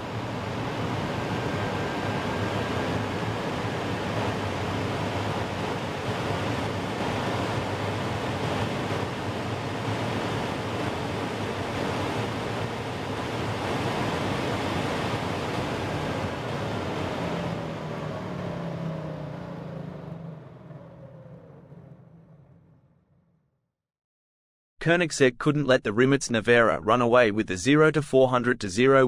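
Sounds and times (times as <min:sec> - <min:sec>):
falling electric whine: 0:00.0 - 0:22.8
roar of wind and tyres: 0:00.0 - 0:23.2.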